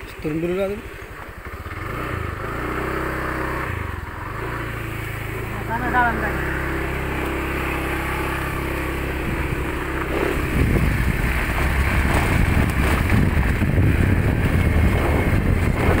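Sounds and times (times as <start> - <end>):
small motorcycle engine running: 0.0 - 16.0
bike jolting on bumpy dirt track: 7.5 - 16.0.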